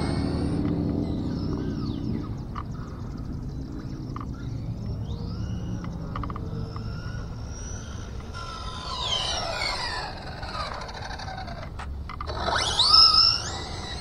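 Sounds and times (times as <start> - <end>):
electric motor whining: 0.0 - 1.8, 6.3 - 14.0
low steady rumble: 0.0 - 14.0.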